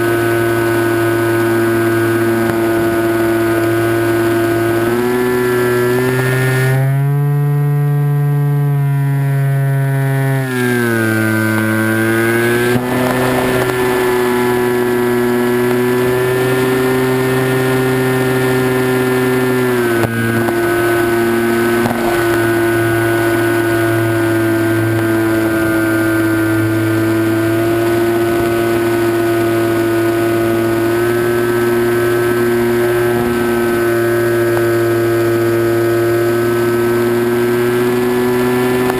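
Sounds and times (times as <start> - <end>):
electric motor and propeller whine: 0.0 - 38.9.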